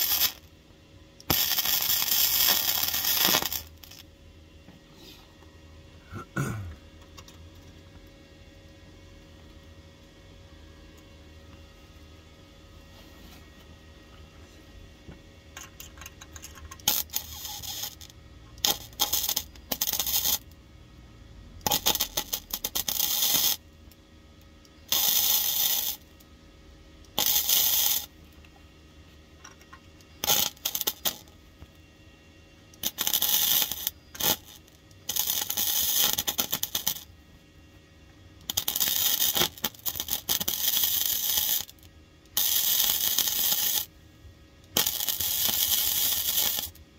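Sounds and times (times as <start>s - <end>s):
welder arc crackling: 0.0s - 0.6s, 1.2s - 4.1s, 15.6s - 20.8s, 21.6s - 24.0s, 24.7s - 26.3s, 27.0s - 28.6s, 29.4s - 31.8s, 32.7s - 37.2s, 38.4s - 44.0s, 44.6s - 46.8s.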